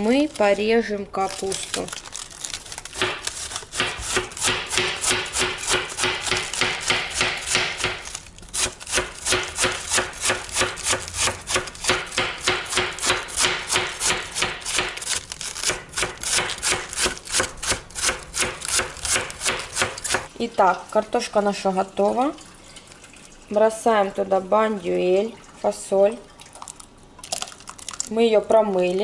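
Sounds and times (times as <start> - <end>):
knife shredding cabbage on board: 2.7 - 20.3.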